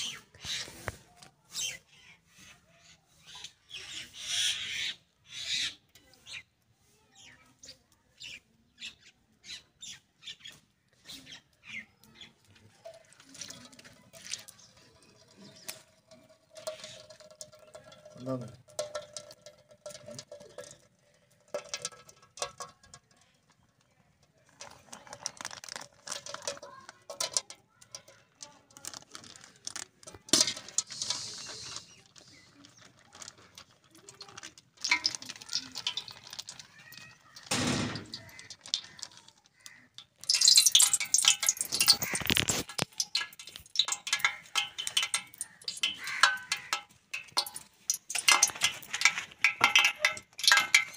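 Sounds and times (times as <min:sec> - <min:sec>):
faint voices: 0:10.9 - 0:40.4
plastic packet crinkling: 0:12.4 - 0:20.8, 0:21.5 - 0:50.9.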